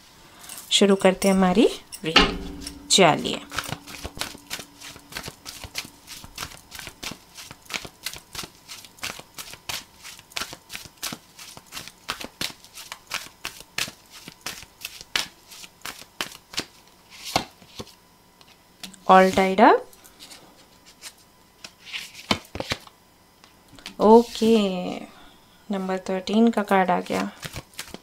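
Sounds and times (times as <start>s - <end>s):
cards being shuffled: 27.0s - 28.0s.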